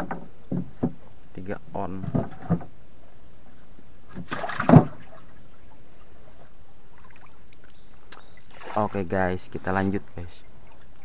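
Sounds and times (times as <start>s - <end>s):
faint water background: 0.0s - 11.0s
water splash: 4.1s - 5.3s, 8.5s - 9.0s.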